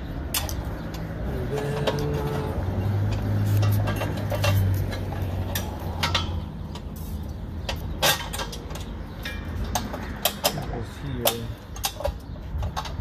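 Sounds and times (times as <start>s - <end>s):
metal clinks and knocks: 0.2s - 7.0s, 7.6s - 13.0s.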